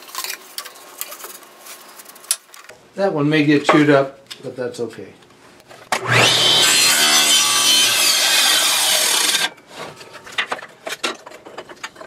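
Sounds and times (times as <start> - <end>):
saw blade whine: 6.0 - 9.6
table saw cutting wood: 6.0 - 9.6.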